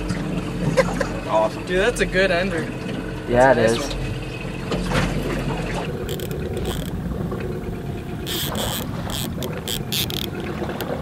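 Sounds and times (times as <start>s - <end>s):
boat motor humming: 0.0s - 11.0s.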